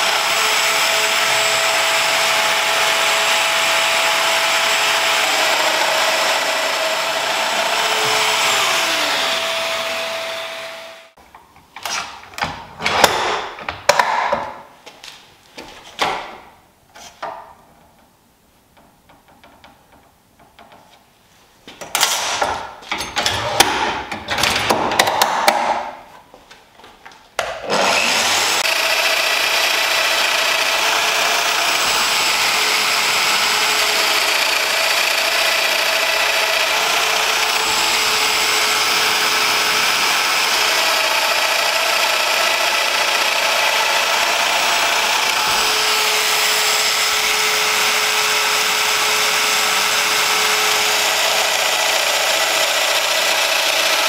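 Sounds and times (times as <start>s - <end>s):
power joiner running: 0.0s - 11.2s, 27.6s - 54.0s.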